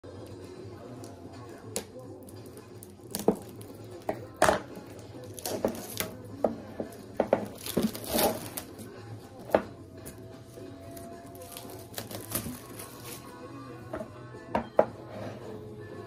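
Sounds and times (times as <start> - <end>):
plastic rustling: 4.9 - 8.9, 10.8 - 13.4
plastic shrink-wrap crinkling: 5.2 - 6.2, 7.3 - 8.9, 10.9 - 13.4.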